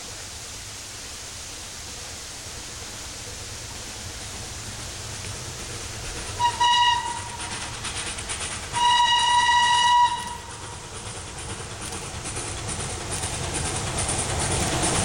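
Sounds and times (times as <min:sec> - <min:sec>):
steam locomotive whistle blasts: 0:06.4 - 0:07.5, 0:08.7 - 0:10.6.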